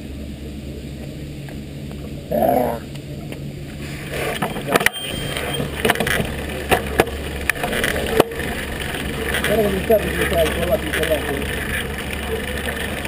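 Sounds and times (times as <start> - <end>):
bike tyres on paving stones: 0.9 - 13.0
bike rattling over bumps: 3.4 - 13.0.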